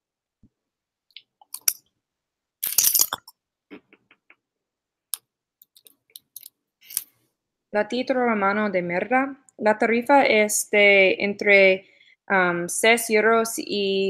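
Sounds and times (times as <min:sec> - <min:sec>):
wet mouth clicks and lip smacking: 0:01.2 - 0:01.8, 0:02.6 - 0:04.4.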